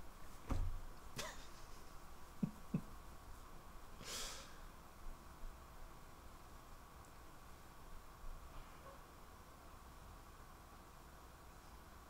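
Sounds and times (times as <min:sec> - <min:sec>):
soft knocks and clicks: 0:00.4 - 0:00.8
breathy exhale: 0:04.0 - 0:04.6.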